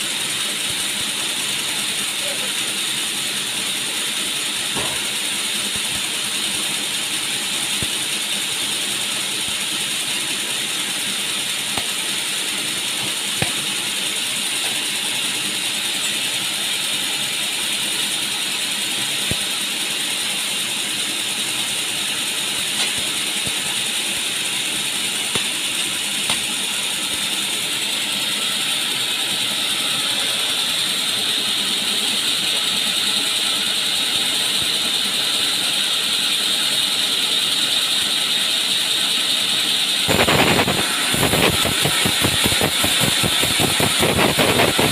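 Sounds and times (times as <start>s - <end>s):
band saw whine and hiss: 0.0s - 44.9s
log carriage knocks: 4.7s - 5.2s.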